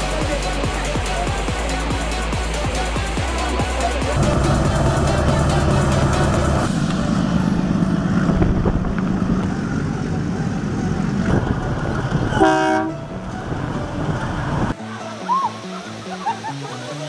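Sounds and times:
diesel train rumbling: 3.9s - 14.8s
train horn blast: 12.3s - 13.1s.

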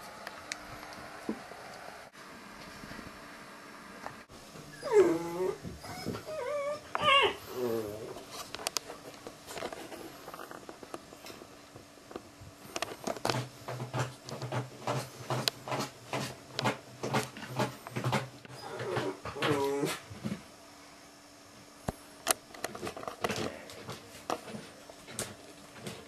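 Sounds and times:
dog whining: 4.6s - 8.2s, 18.5s - 20.0s.

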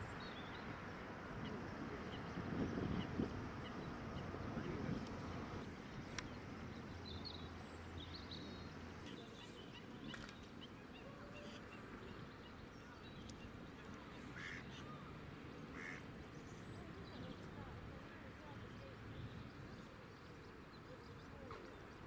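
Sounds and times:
small clicks: 10.1s - 10.5s
distant waterfowl calls: 14.2s - 15.1s, 15.7s - 16.1s.

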